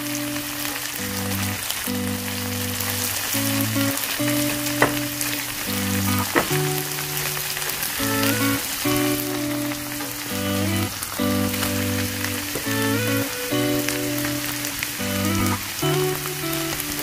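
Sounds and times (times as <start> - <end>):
food sizzling in frying pan: 0.0 - 17.0
soft background music: 0.0 - 17.0.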